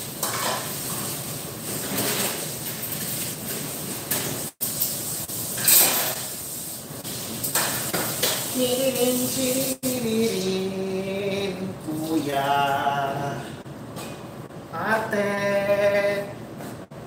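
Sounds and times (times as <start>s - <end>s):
dishes and utensils clattering: 0.2s - 0.8s
short loud hiss: 5.6s - 6.4s.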